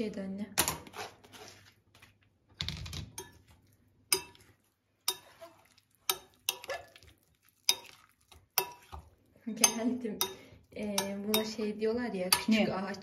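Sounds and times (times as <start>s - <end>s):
metal spoon clinking on glass: 3.2s - 3.5s, 4.1s - 4.4s, 5.1s - 5.4s, 6.1s - 6.9s, 7.7s - 8.0s, 8.6s - 9.0s, 9.6s - 11.6s.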